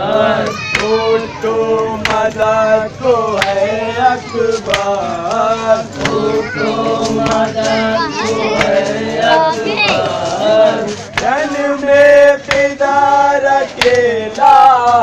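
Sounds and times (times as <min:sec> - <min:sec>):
men chanting a lament: 0:00.0 - 0:15.0
chest-beating slaps: 0:03.4 - 0:03.6, 0:04.6 - 0:06.2, 0:12.4 - 0:12.7, 0:13.8 - 0:14.1.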